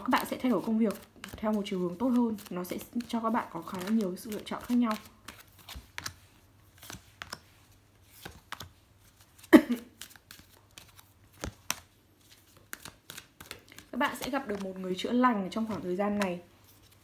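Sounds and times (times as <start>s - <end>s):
cards flicking and clicking: 0.2s - 6.2s, 8.1s - 14.9s.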